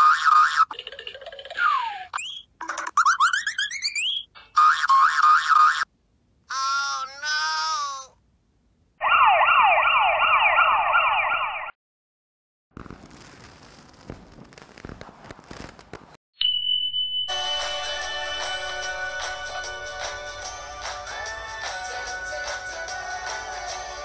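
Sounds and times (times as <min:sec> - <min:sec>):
police siren wailing: 0:09.0 - 0:11.7
crackly noise: 0:12.7 - 0:16.2
music: 0:17.3 - 0:24.0.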